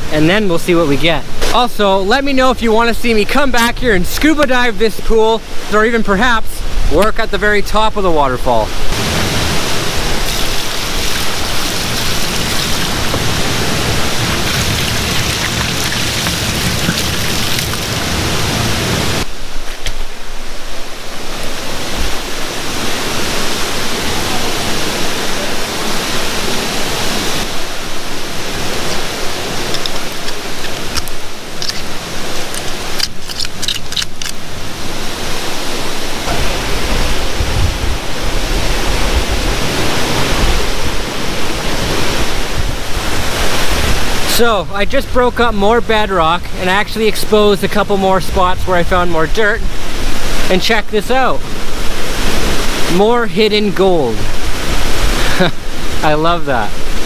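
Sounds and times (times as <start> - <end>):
waterfall and creek rushing: 0.0 - 57.0
wind rumble on microphone: 33.9 - 46.6.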